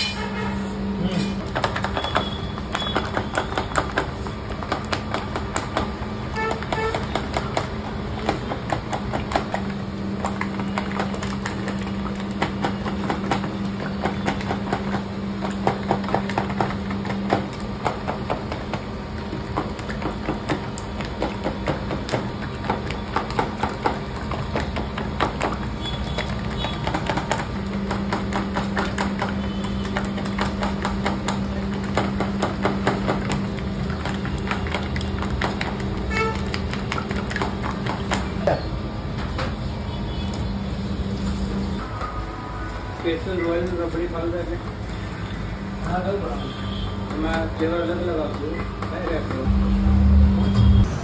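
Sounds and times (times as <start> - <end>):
low hum: 49.5 - 51.0.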